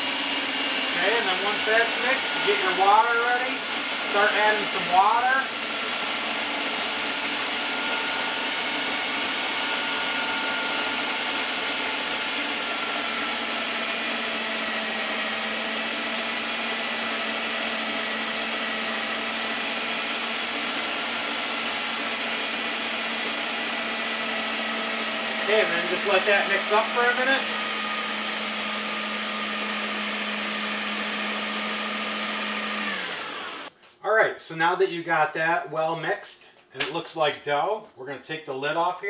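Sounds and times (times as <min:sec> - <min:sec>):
food processor motor running: 0:00.0 - 0:33.7.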